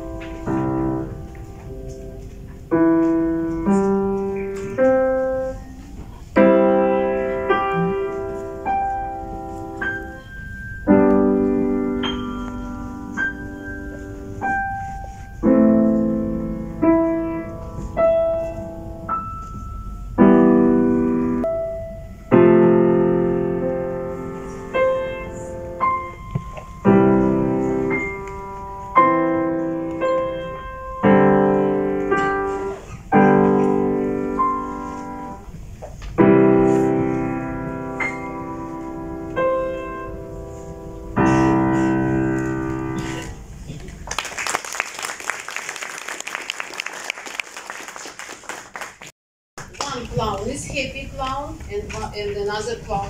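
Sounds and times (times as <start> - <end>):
piano playing slow chords: 0.0 - 43.7.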